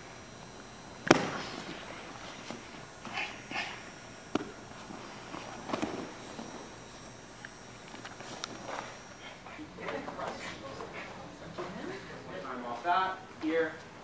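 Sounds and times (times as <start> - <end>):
bodies thumping on foam mats: 1.0 - 2.7, 4.3 - 6.7.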